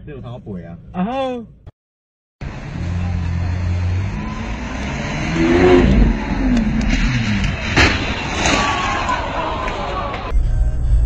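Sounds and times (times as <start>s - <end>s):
car engine revving: 2.4s - 9.6s.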